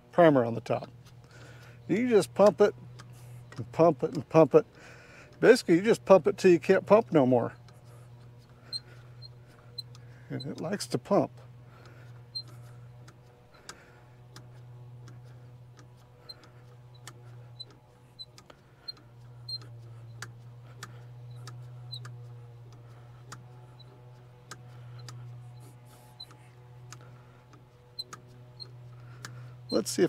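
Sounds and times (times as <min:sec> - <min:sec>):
steady low hum: 0:00.0 - 0:30.0
hand primer pump clicking: 0:00.8 - 0:05.4, 0:11.8 - 0:30.0.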